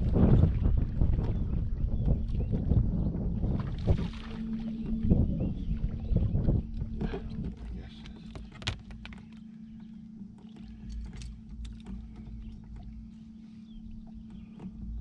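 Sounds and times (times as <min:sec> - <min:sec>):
low hum and rumble: 0:00.0 - 0:15.0
fishing gear clicking and knocking: 0:06.8 - 0:13.1.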